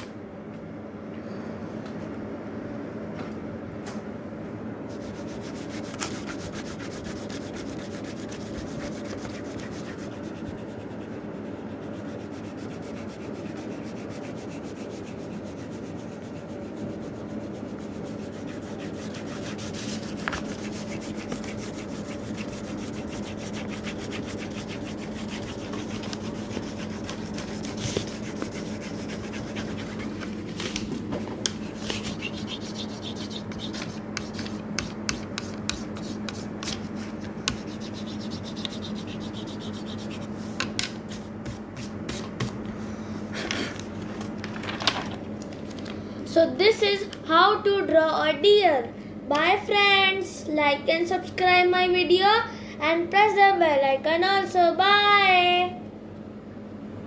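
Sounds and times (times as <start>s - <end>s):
steady low hum: 0.0s - 57.0s
crayon scribbling on paper: 4.9s - 30.6s, 31.5s - 42.5s.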